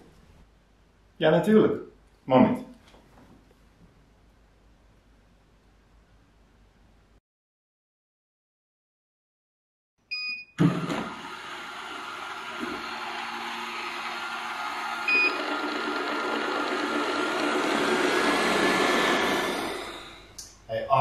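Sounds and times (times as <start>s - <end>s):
vacuum motor whirring: 10.6s - 20.4s
robot vacuum beeping: 15.0s - 16.5s.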